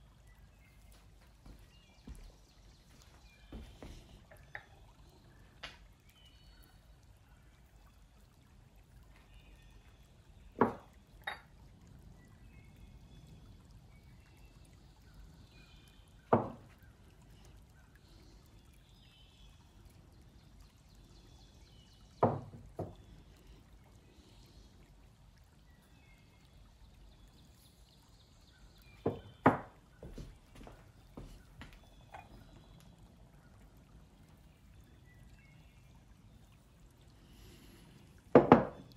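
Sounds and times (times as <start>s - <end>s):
light metal clinks: 11.2s - 11.6s.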